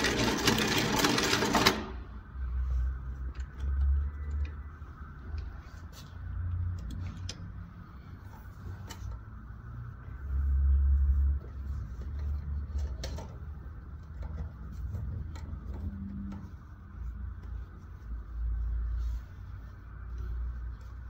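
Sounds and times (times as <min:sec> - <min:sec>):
sewing machine stitching: 0:00.0 - 0:02.0.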